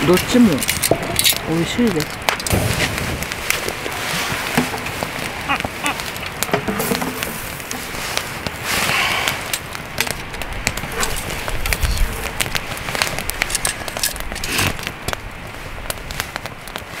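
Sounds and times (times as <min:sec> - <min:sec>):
wood fire crackling: 0:00.0 - 0:17.0
sharp pops: 0:00.1 - 0:16.9.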